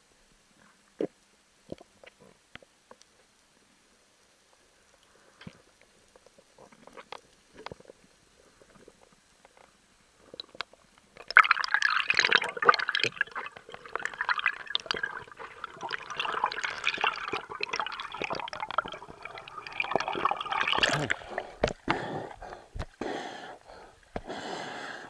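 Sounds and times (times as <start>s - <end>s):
underwater bubbling and rushing water: 10.2s - 23.0s.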